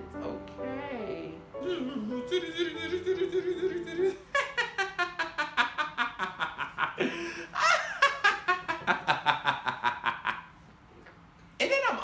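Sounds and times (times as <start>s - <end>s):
man laughing hard: 2.8s - 10.5s.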